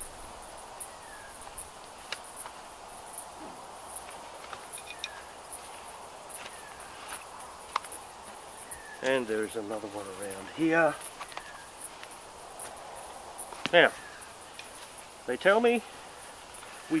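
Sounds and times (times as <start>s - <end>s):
insects chirping: 0.0s - 17.0s
tent straps and frame clicking: 1.4s - 9.3s, 10.2s - 15.2s.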